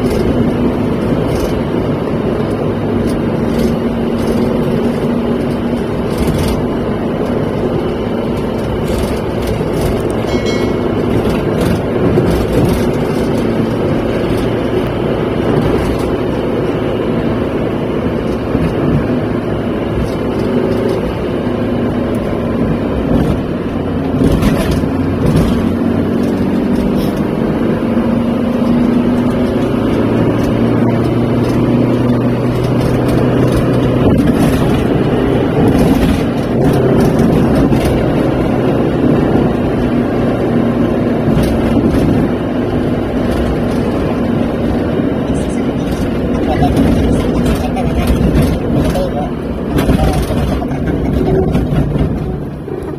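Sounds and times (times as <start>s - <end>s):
car engine hum: 0.0s - 52.9s
tyre road noise: 0.0s - 52.9s.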